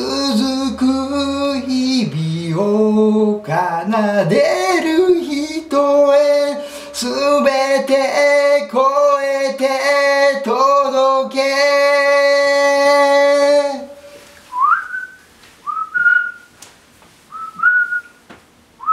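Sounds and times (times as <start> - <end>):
man singing unaccompanied: 0.0 - 14.2
rising whistle-like chirps: 14.5 - 16.5, 17.3 - 18.2.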